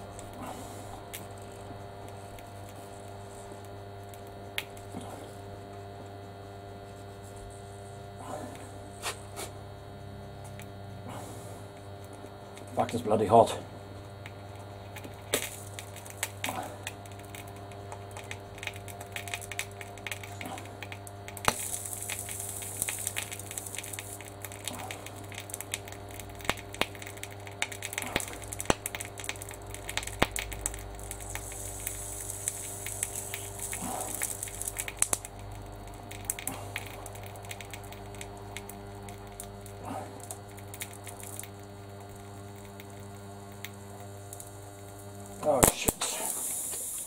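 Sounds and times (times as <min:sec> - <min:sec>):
crackles and sharp pops: 0:00.0 - 0:47.0
transformer humming: 0:08.1 - 0:47.0
high hiss: 0:21.4 - 0:25.2, 0:30.8 - 0:35.2, 0:42.2 - 0:47.0.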